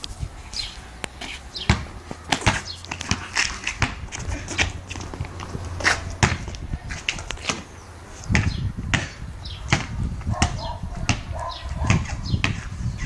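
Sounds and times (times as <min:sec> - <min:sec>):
sneakers scuffing on pavement: 0:00.0 - 0:13.0
basketball bouncing on concrete: 0:01.2 - 0:13.0
ball knocking hoop: 0:01.7 - 0:06.6, 0:08.3 - 0:12.6.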